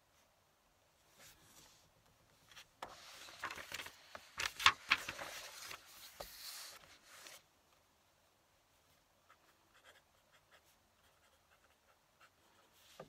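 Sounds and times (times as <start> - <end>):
paper rustling and rubbing: 2.6 - 7.4.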